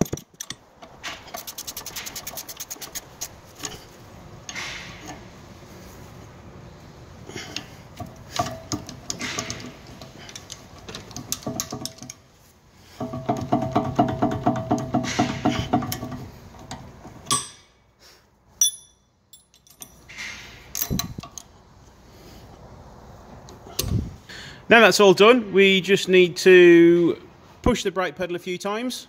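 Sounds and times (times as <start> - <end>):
ratchet clicking: 1.3 - 3.4
tool clinks: 18.6 - 21.4.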